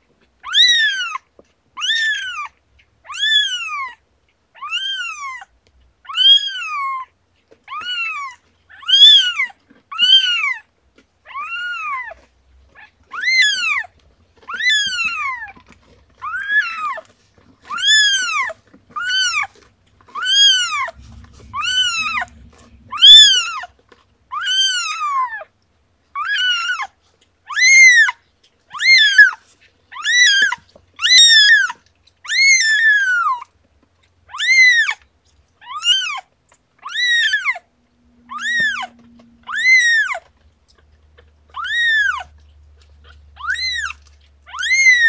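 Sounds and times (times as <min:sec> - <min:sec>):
kitten mewing: 0:17.7 - 0:23.7.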